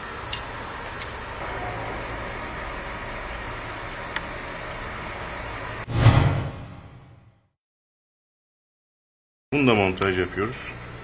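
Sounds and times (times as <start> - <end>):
low hum: 1.3 - 7.4.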